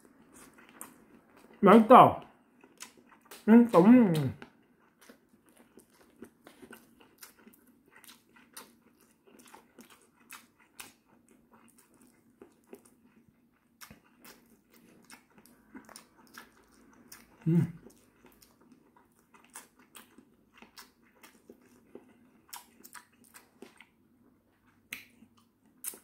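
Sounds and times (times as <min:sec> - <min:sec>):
man chewing: 0:00.0 - 0:01.6, 0:02.4 - 0:26.0.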